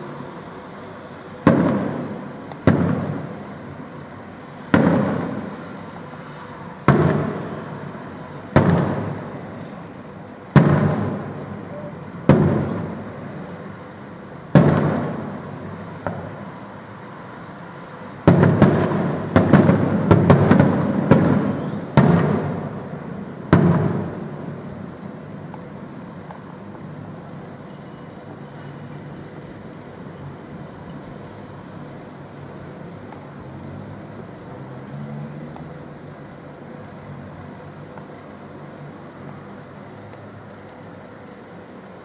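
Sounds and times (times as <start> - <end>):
firework shells bursting in bangs: 1.4 - 3.4, 4.7 - 5.6, 6.8 - 7.8, 8.5 - 9.4, 10.5 - 11.6, 12.2 - 13.1, 14.5 - 16.3, 18.2 - 24.3.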